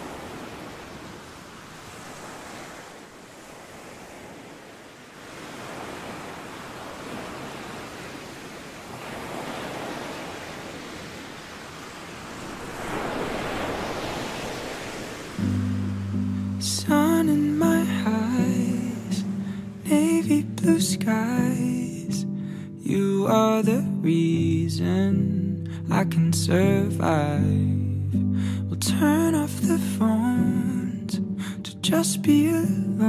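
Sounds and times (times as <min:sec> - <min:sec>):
ocean surf breaking on beach: 0:00.0 - 0:22.2.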